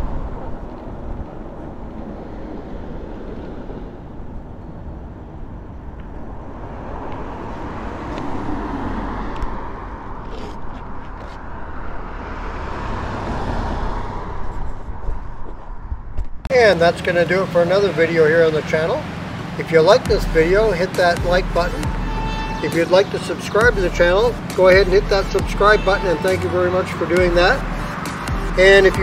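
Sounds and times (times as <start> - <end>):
wind on microphone: 0.0 - 12.1, 12.7 - 16.5
e-bike road noise rumble: 0.0 - 29.0.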